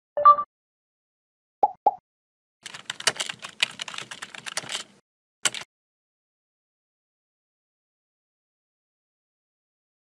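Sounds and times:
computer keyboard typing: 2.6 - 5.7.

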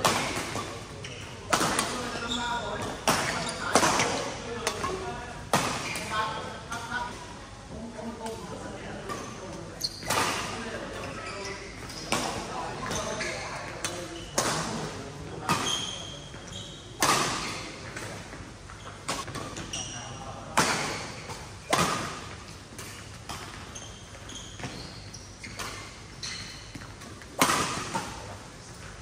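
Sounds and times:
shoes squeaking on court: 0.0 - 7.2, 8.6 - 29.0
rackets smacking shuttlecock: 1.5 - 6.1.

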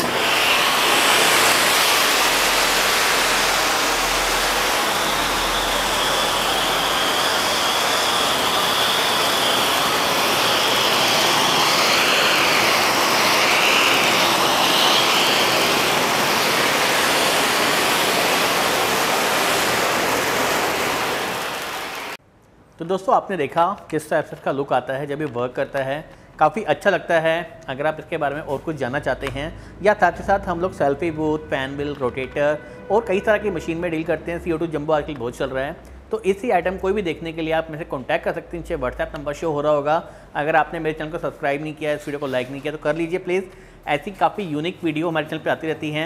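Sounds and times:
rushing hiss of spraying sparks: 0.0 - 22.2.

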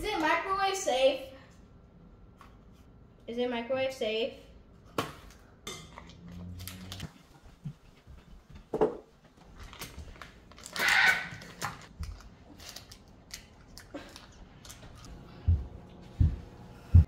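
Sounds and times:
paper wrapper crinkling and tearing: 9.4 - 14.8.

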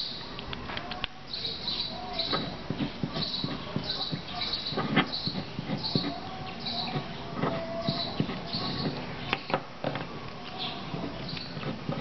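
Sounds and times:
pen scratching and tapping on paper: 2.3 - 9.0, 10.9 - 12.0.

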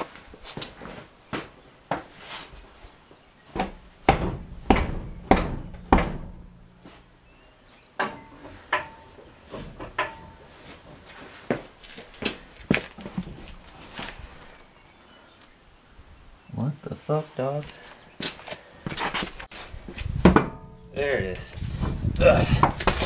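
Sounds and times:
tools knocking and clanking metal: 3.6 - 6.6, 8.0 - 10.5, 20.3 - 21.0.

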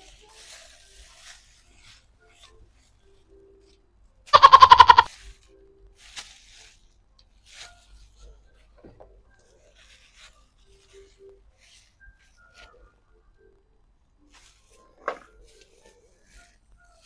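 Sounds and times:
faint rustles: 0.0 - 13.0.

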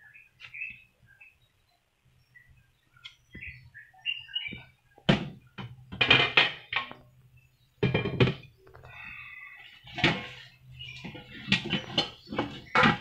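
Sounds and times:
kitchenware knocking and clattering: 5.1 - 7.0, 7.8 - 8.5, 9.9 - 10.4, 11.0 - 13.0.

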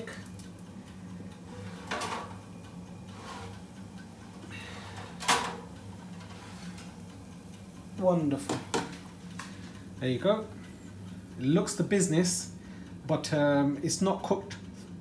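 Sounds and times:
steady low hum: 0.0 - 15.0
oven tray scraping on rack: 1.4 - 7.0
oven tray clanking: 1.4 - 10.5.

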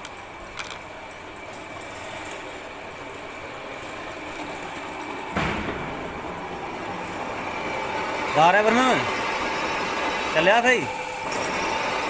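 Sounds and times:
machinery humming: 0.0 - 12.0
loud knock: 5.3 - 7.5.

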